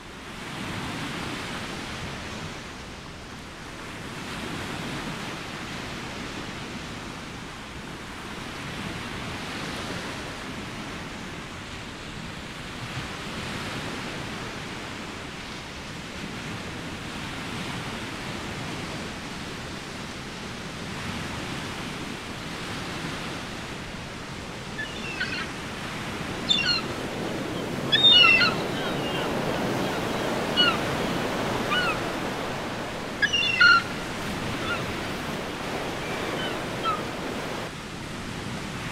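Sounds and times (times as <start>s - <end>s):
small waves washing onto shore: 0.0s - 38.9s
bird giving sharp cries: 24.7s - 35.1s, 35.8s - 37.2s.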